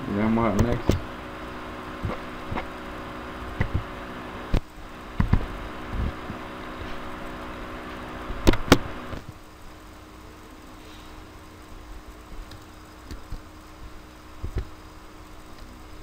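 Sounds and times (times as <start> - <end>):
steady low hum: 0.0 - 16.0
sharp clicks and knocks: 8.4 - 9.3.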